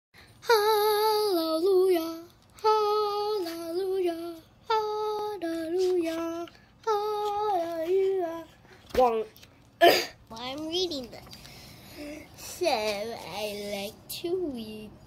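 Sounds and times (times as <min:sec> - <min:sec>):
young child singing: 0:00.4 - 0:09.3, 0:12.0 - 0:15.0.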